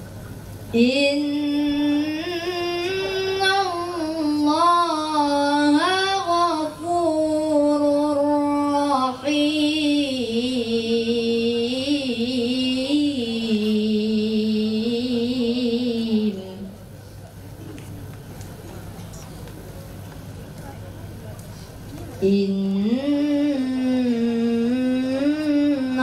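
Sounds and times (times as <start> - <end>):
person chanting melodic recitation: 0.7 - 16.8, 22.2 - 26.0.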